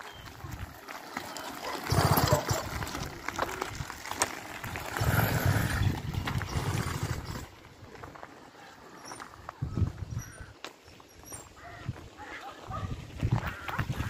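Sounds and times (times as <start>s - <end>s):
two-stroke engine firing bursts: 1.9s - 2.8s.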